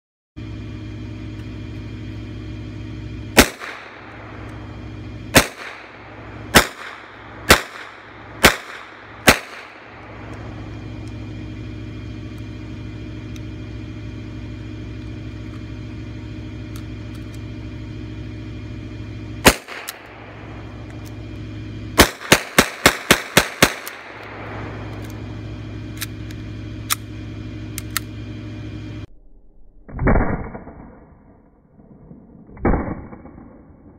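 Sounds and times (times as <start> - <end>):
pistol shots: 3.4 - 4.0, 5.3 - 10.0, 19.4 - 20.3, 22.0 - 24.7.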